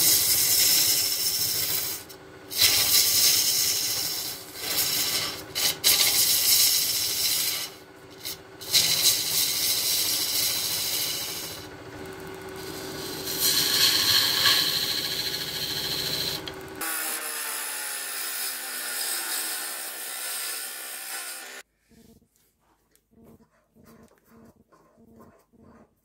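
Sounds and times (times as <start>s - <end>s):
lathe running: 0.0s - 21.6s
lathe tool scraping wood: 0.0s - 21.6s.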